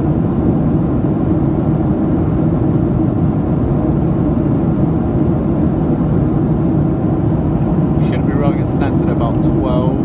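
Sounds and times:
aircraft cabin engine roar: 0:00.0 - 0:10.0.

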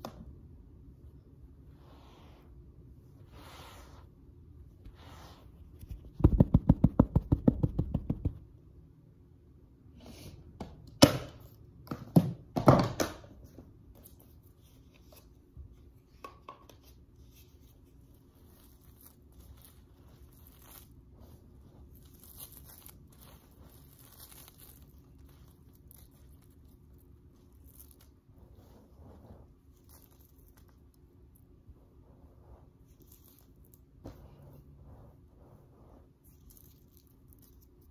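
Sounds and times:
hand patting a carpet: 0:05.8 - 0:08.4
dust clumps rustling: 0:17.3 - 0:31.4.

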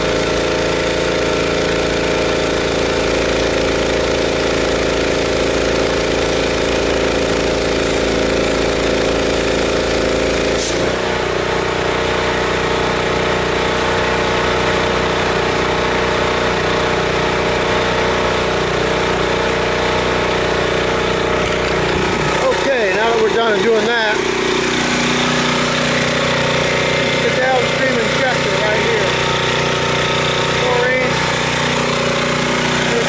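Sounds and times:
pressure washer engine running: 0:00.0 - 0:33.0.

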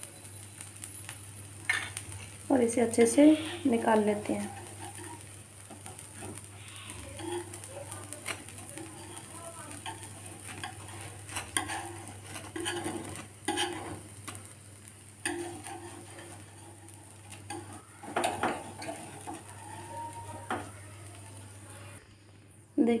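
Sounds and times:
light sizzle: 0:00.0 - 0:23.0
knife scraping on pan: 0:03.0 - 0:14.4, 0:15.2 - 0:20.7.

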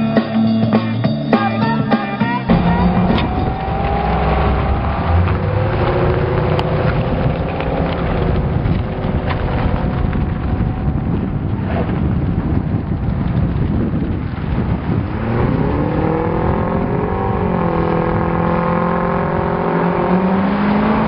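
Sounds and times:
car engines driving past: 0:02.5 - 0:12.0, 0:14.7 - 0:21.0
wind buffeting microphone: 0:02.5 - 0:21.0.

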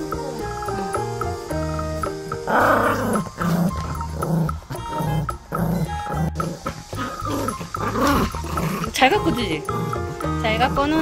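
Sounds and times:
background music: 0:00.0 - 0:11.0
puppy growling: 0:02.4 - 0:10.1.

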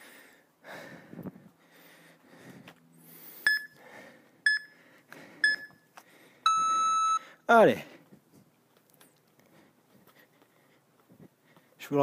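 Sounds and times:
short electronic timer beeps: 0:03.5 - 0:03.8, 0:04.5 - 0:04.7, 0:05.4 - 0:05.8, 0:06.4 - 0:07.2.

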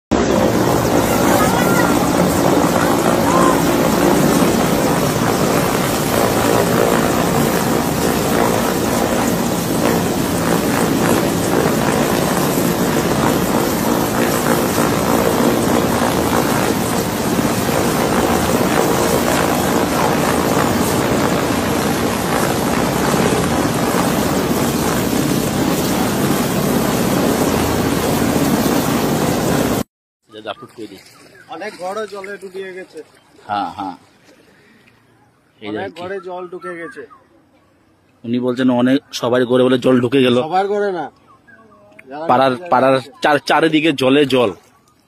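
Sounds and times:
helicopter rotor and turbine: 0:00.1 - 0:29.9.

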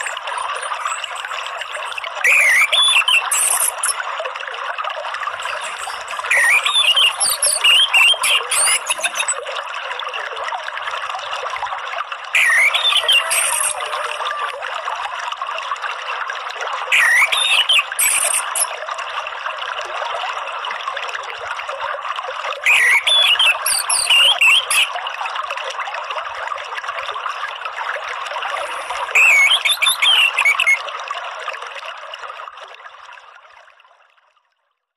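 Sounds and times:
thrush whistled song: 0:00.0 - 0:04.0, 0:05.3 - 0:09.4, 0:12.4 - 0:14.6, 0:16.9 - 0:18.8, 0:22.6 - 0:25.0, 0:28.4 - 0:30.8
running water trickling: 0:00.0 - 0:34.8.

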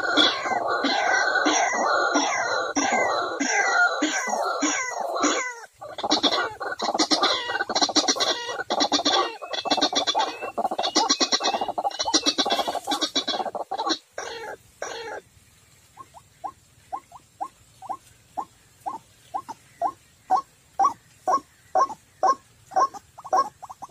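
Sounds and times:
bird harsh croaking calls: 0:00.0 - 0:15.3, 0:15.9 - 0:23.9.

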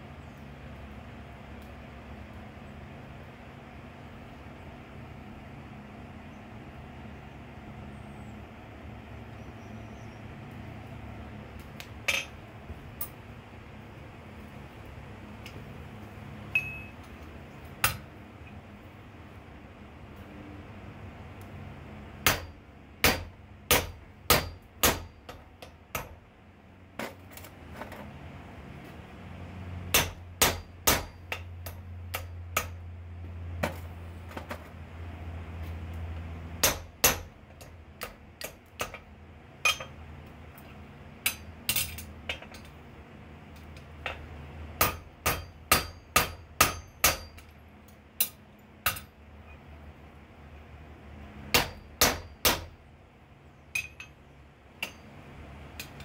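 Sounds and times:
hammer striking steel on anvil: 0:12.1 - 0:12.4, 0:16.5 - 0:17.0, 0:17.8 - 0:18.1, 0:22.2 - 0:26.2, 0:29.9 - 0:32.8, 0:36.6 - 0:40.0, 0:41.2 - 0:42.7, 0:44.8 - 0:47.6, 0:48.2 - 0:49.1, 0:51.5 - 0:52.7, 0:53.7 - 0:54.2, 0:54.8 - 0:55.2.

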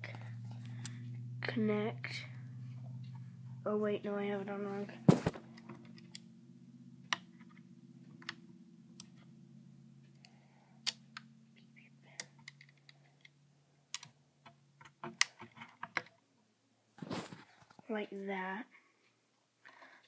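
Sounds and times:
faint steady hum: 0:00.0 - 0:20.0
magnetic balls clicking together: 0:10.1 - 0:16.1.

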